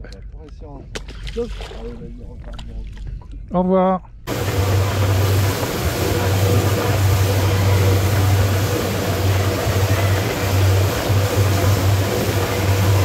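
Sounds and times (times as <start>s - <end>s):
motorboat engine hum: 4.3s - 13.0s
wind and water rushing: 4.3s - 13.0s.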